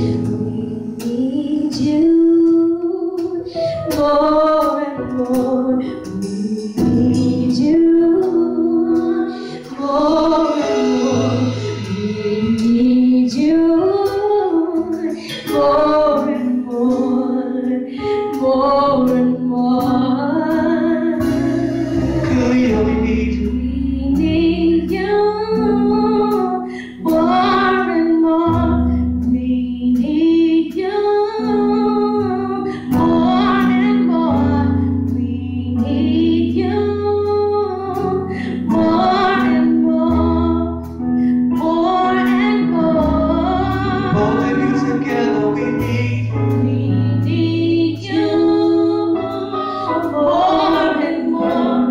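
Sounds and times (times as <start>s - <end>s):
women singing gospel: 7.6s - 17.9s, 19.0s - 23.2s, 46.8s - 51.9s
long held bass notes: 20.3s - 26.3s, 31.6s - 51.9s.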